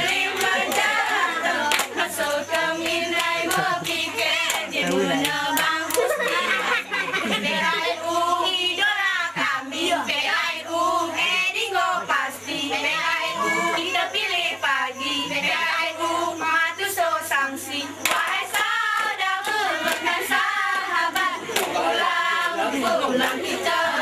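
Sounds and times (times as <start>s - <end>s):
hands clapping: 0.0s - 6.5s, 18.0s - 22.0s
women singing a chant: 0.0s - 24.0s.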